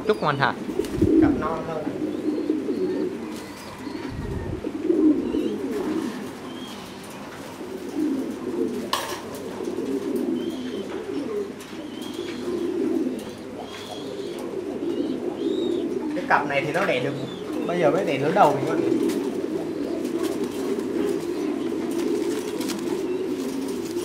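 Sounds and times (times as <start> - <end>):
pigeons cooing: 0.0 - 24.0.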